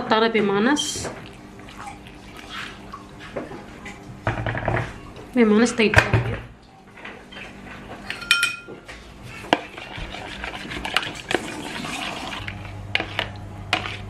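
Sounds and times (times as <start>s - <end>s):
spoon clinking against tub: 8.1s - 8.8s.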